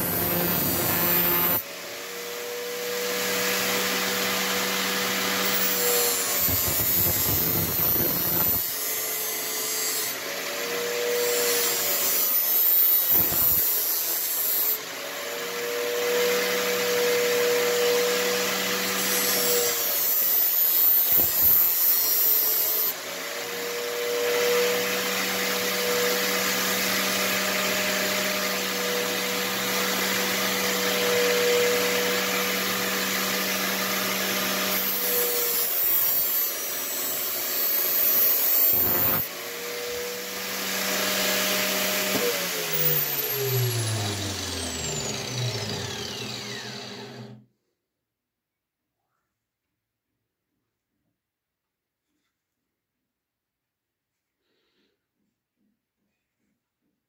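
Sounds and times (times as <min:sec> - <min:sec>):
angle grinder grinding knife blade: 0:00.0 - 0:01.6, 0:05.4 - 0:09.0, 0:33.8 - 0:39.3.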